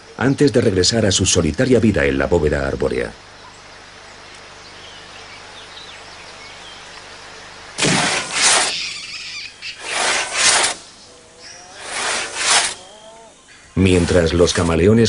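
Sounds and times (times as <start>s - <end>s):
faint bird chirps: 3.2s - 7.8s, 8.5s - 14.3s
hand saw cutting log: 7.8s - 8.8s, 9.8s - 10.9s, 11.8s - 12.9s, 13.9s - 14.8s.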